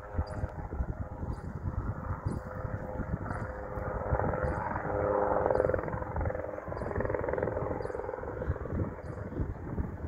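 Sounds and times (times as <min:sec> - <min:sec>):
distant helicopter rotor thrum: 0:00.0 - 0:10.0
wind buffeting microphone: 0:00.0 - 0:10.0.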